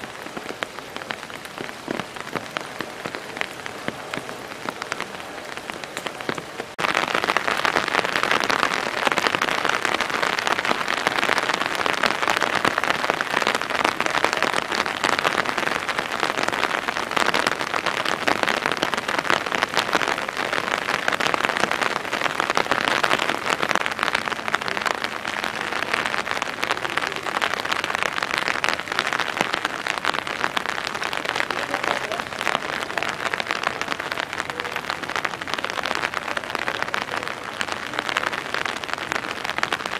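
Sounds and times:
rain pattering: 0.0s - 39.9s.

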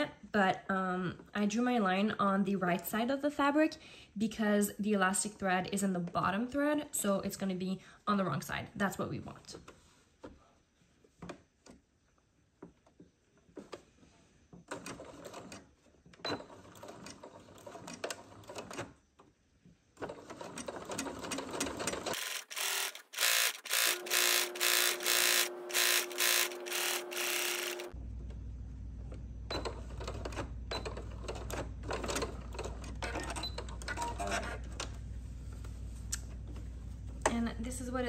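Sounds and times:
sewing machine clacking: 20.0s - 28.0s.

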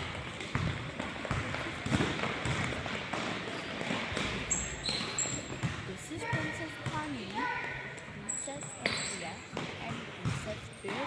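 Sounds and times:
sneakers pounding on hardwood floor: 0.0s - 7.2s.

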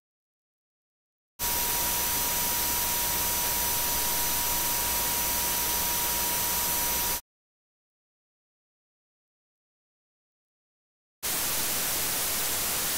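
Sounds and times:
high-pitched whine tones: 1.4s - 7.2s
steady hiss: 1.4s - 7.2s, 11.2s - 12.9s.

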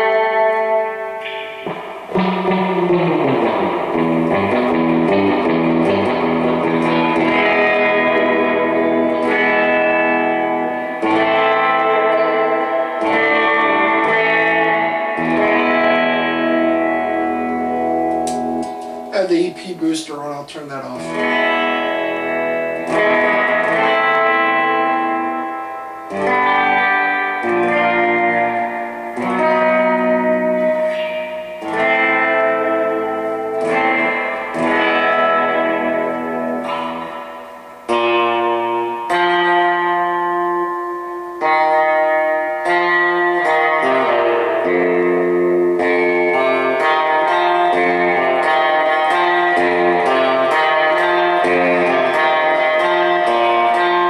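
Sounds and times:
electric guitar with reverb: 0.0s - 54.0s.

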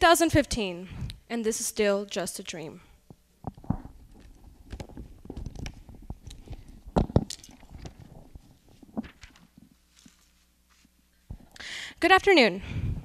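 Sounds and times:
microphone handling noise: 3.0s - 9.8s.

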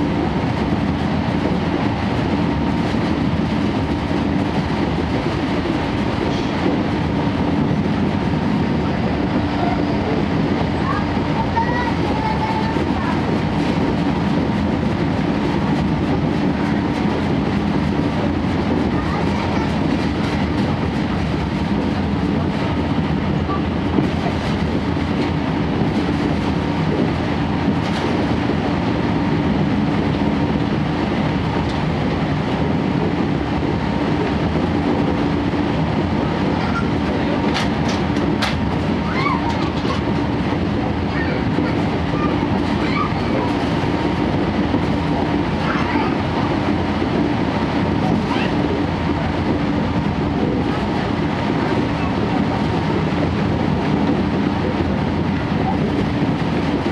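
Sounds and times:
train wheels clickety-clack on rails: 0.0s - 56.9s.

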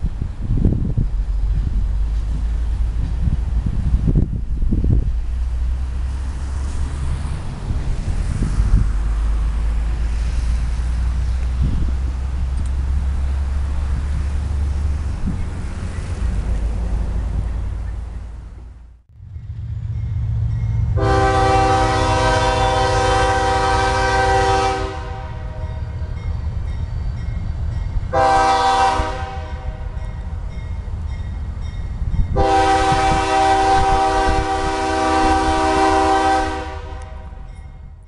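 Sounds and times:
freight cars rolling: 0.0s - 28.4s
diesel locomotive rumbling: 0.0s - 38.0s
locomotive air horn blasts: 20.9s - 26.0s, 28.1s - 30.0s, 32.3s - 37.6s.

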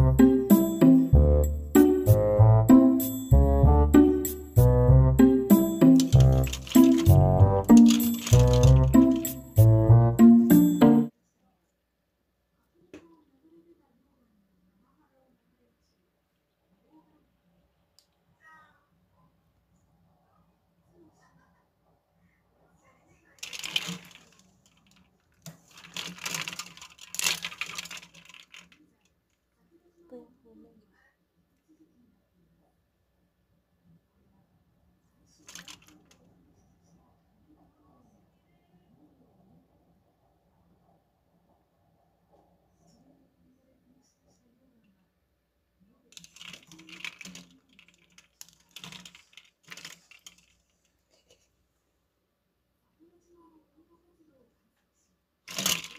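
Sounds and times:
prawns clattering against ice: 23.4s - 28.8s, 46.2s - 50.6s, 55.5s - 55.9s.

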